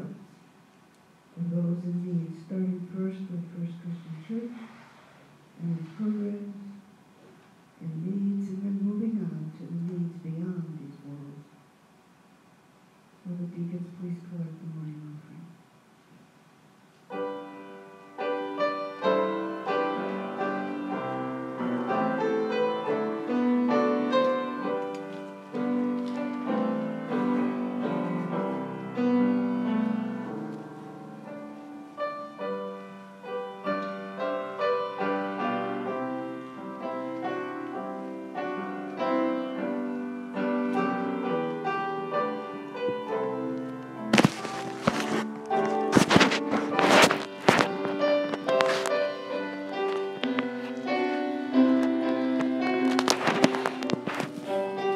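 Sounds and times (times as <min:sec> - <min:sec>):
solo piano playing: 0:17.1 - 0:54.9.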